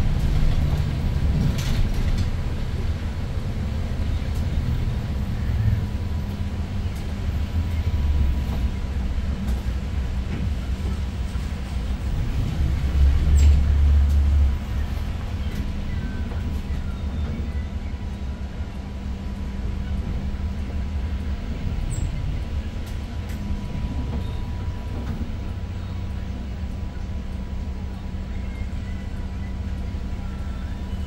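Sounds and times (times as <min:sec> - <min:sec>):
bus engine rumble: 0:00.0 - 0:31.0.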